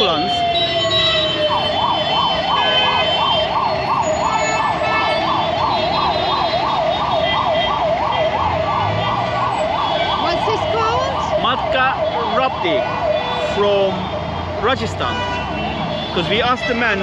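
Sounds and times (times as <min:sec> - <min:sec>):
ambulance siren yelping: 0:00.0 - 0:16.4
busy road traffic: 0:00.0 - 0:17.0.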